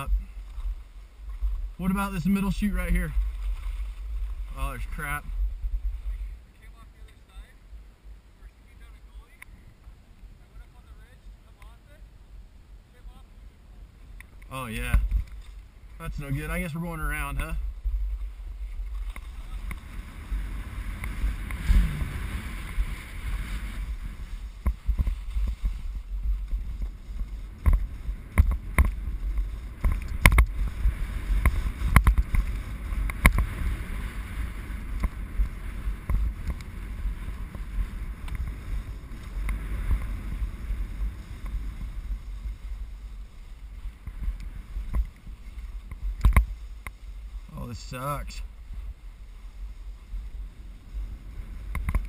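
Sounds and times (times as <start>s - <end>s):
skis scraping over snow: 0.0s - 7.5s, 14.5s - 52.0s
wind rumbling on microphone: 0.0s - 52.0s
sharp clicks and knocks: 27.6s - 30.6s, 45.9s - 47.0s.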